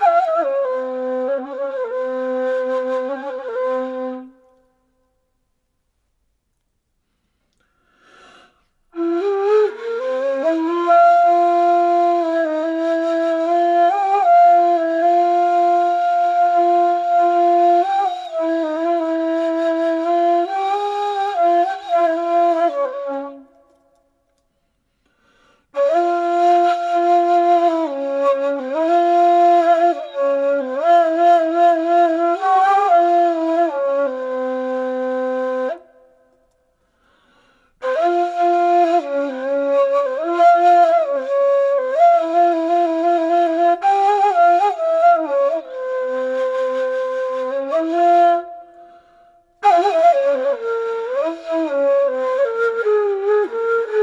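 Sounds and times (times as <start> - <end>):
flute-like slow melody: 0.0 - 5.3, 8.9 - 24.1, 25.7 - 36.6, 37.8 - 54.0.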